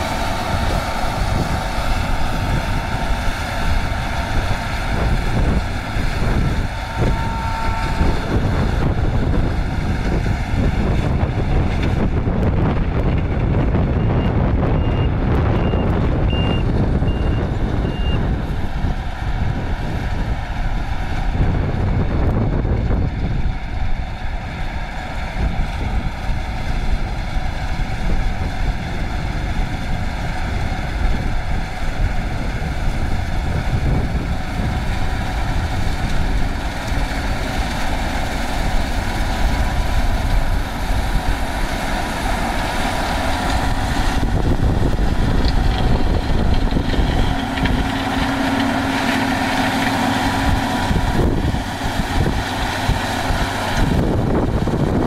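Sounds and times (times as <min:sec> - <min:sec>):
steady hum: 0:00.0 - 0:13.2
combine harvester running: 0:00.0 - 0:55.0.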